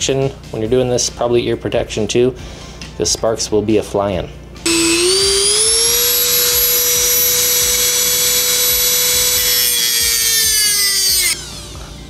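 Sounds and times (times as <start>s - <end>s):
rotary tool high whine: 4.7s - 12.0s.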